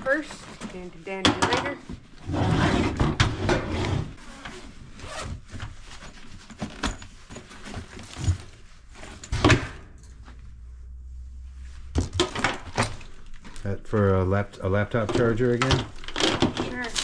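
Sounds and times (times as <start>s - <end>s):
zipper: 2.2s - 6.9s.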